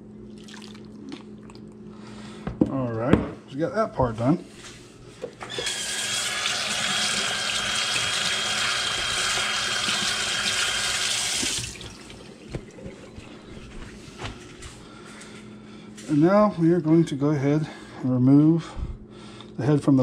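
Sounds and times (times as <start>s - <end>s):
kitchen faucet running: 5.4s - 12.9s.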